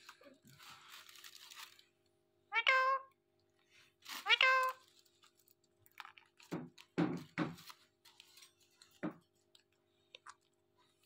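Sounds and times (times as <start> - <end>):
parakeets calling softly: 2.5 - 3.2, 4.2 - 4.8.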